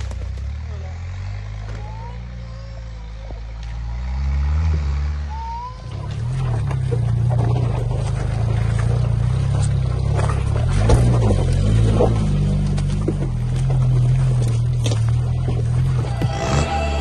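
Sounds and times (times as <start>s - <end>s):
engine running at low revs: 0.0s - 17.0s
off-road engine revving under load: 0.0s - 17.0s
tyres crunching on stones: 6.0s - 17.0s.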